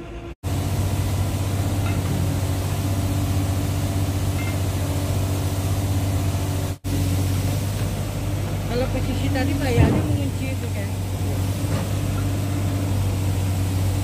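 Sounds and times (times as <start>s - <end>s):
engine humming steadily: 0.0s - 14.0s.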